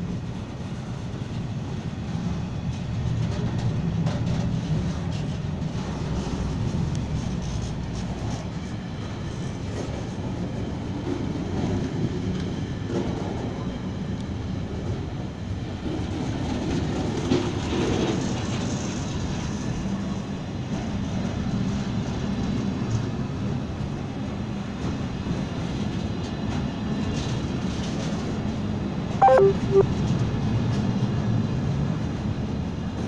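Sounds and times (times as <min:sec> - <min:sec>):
train wagons rumbling past: 0:00.0 - 0:13.9.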